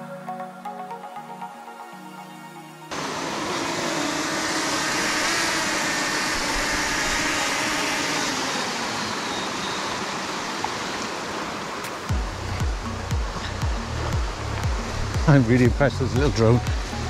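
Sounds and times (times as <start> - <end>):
drone propellers buzzing: 2.8 - 17.0
small waterfall rushing: 2.9 - 17.0
low thumps: 12.1 - 17.0.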